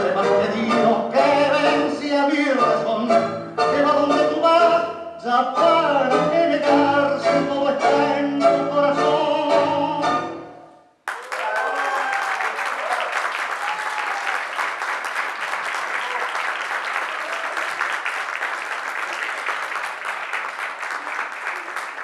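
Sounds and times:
audience applauding: 11.0s - 22.0s
audience cheering: 11.1s - 22.0s.

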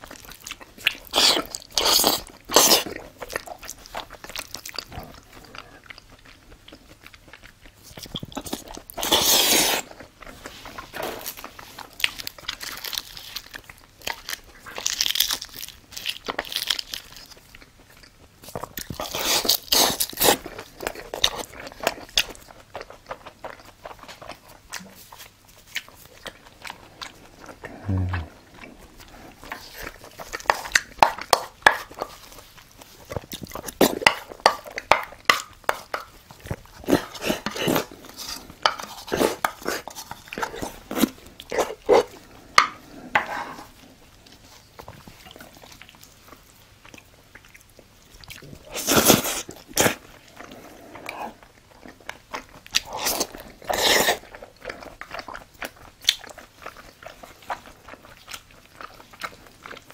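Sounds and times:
chewing crunchy food: 0.0s - 59.9s.

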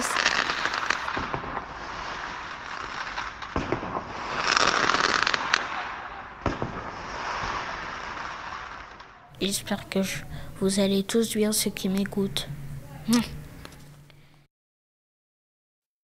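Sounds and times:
sharp firecracker pops: 0.0s - 9.2s
firecrackers crackling: 0.0s - 10.4s.

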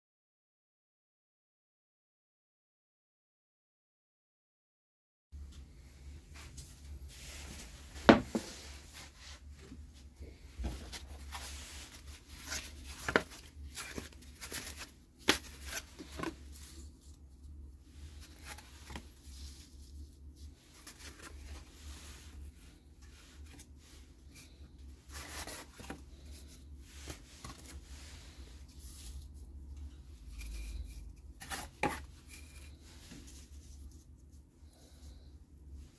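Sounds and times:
cardboard pieces sliding and shuffling: 7.2s - 9.5s, 10.6s - 17.3s, 18.1s - 35.2s
board set down with knock: 8.1s - 8.5s.

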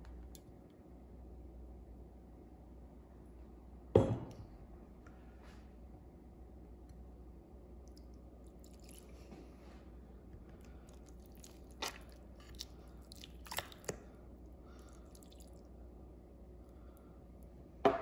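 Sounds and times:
wet squishing of meat: 7.9s - 9.4s, 10.5s - 15.8s.

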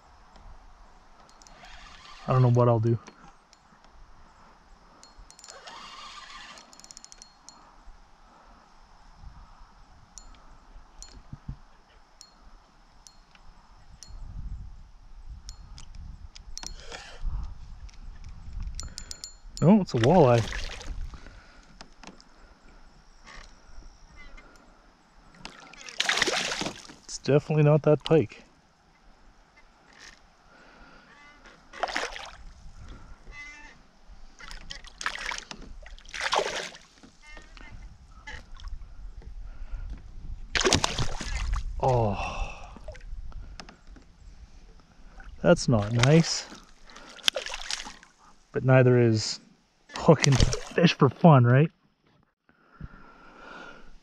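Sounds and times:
spinning reel ticking: 5.0s - 7.4s
fish splashing in water: 25.5s - 27.0s, 31.8s - 32.4s, 34.8s - 36.9s, 40.6s - 41.6s, 47.0s - 48.1s.

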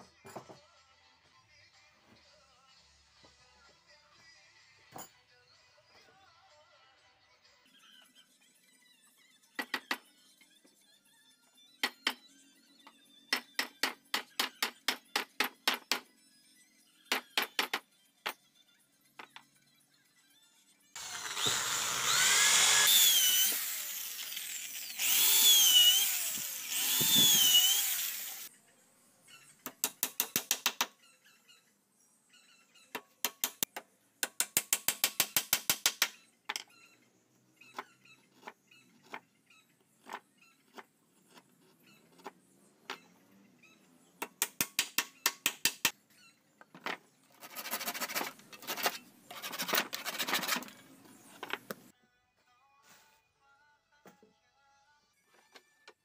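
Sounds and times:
power drill boring into wood: 21.0s - 28.5s.

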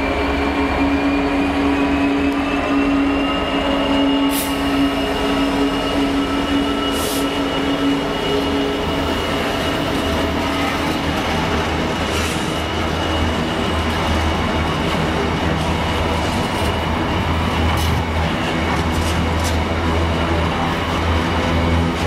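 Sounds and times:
high-pitched wheel squeal: 0.0s - 10.8s
diesel locomotive engine droning: 0.0s - 22.0s.

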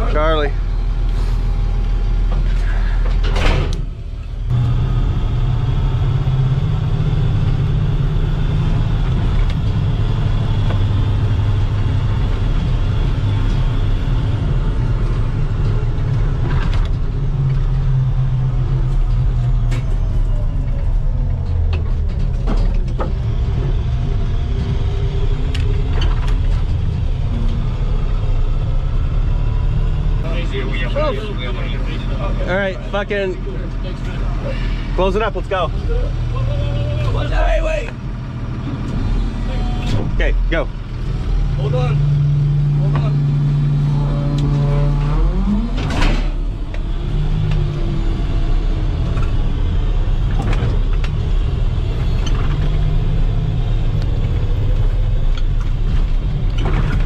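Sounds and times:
vehicle engine and road rumble: 0.0s - 57.0s
knocks and rattles: 21.2s - 27.7s.

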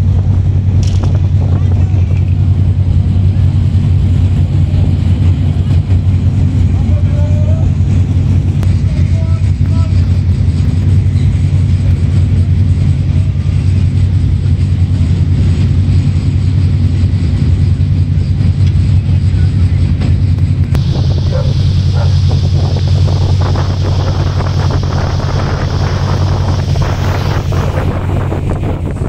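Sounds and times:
wind on microphone: 0.0s - 15.9s, 20.5s - 29.0s
ship engines droning: 0.0s - 29.0s
rushing water: 20.8s - 29.0s.

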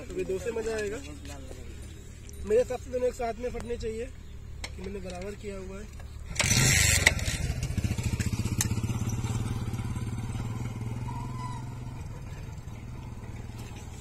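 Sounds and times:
vehicle engine pulsing drone: 6.0s - 14.0s.

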